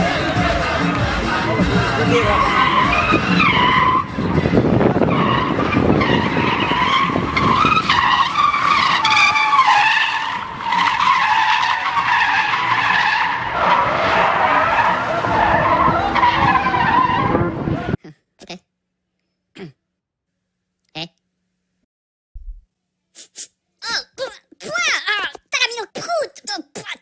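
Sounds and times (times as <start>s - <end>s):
car engines running: 0.0s - 18.0s
tyres squealing on asphalt: 0.0s - 18.0s.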